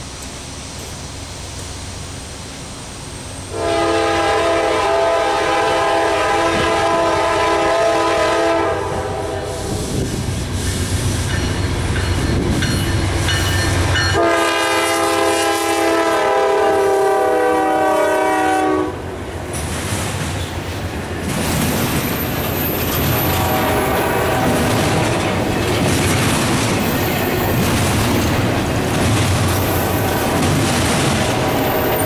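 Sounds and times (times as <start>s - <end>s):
locomotive air horn blast: 3.5s - 10.1s, 14.1s - 19.1s, 23.2s - 25.0s
locomotives rumbling past: 18.9s - 32.0s.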